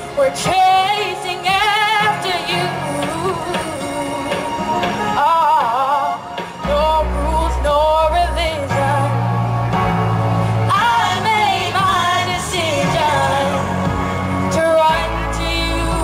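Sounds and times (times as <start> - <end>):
backing track bass notes: 0.0 - 16.0
girl singing gospel song: 0.2 - 4.5, 10.7 - 13.8, 14.5 - 16.0.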